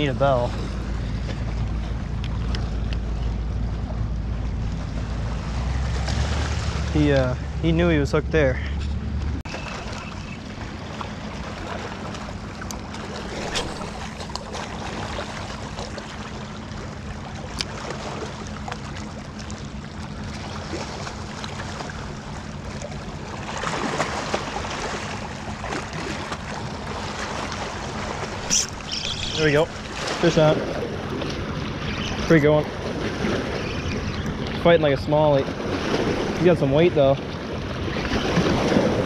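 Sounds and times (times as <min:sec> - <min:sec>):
small waves lapping on rocks: 0:20.3 - 0:39.0.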